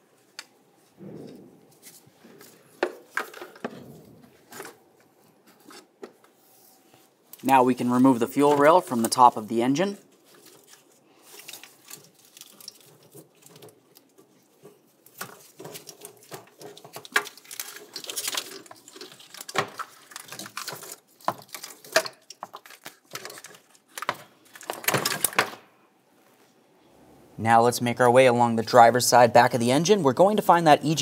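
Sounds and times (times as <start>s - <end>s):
clicks and rattles of parts handled: 1.3s - 6.4s, 9.8s - 25.6s.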